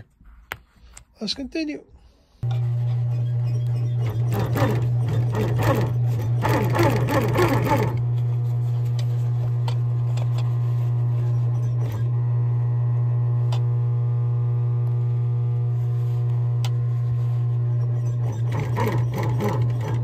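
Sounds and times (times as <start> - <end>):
sewing machine stitching: 2.5 - 8.1, 17.7 - 20.0.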